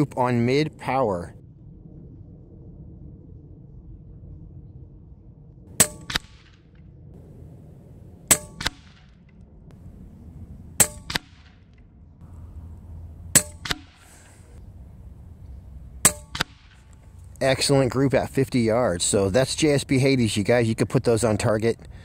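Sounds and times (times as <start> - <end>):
pellet striking target: 5.7 - 6.7, 8.3 - 9.3, 10.8 - 11.8, 13.3 - 14.6, 16.0 - 17.0
air rifle shots: 5.7 - 7.6, 8.2 - 9.3, 10.8 - 11.8, 13.3 - 14.6, 16.0 - 17.0.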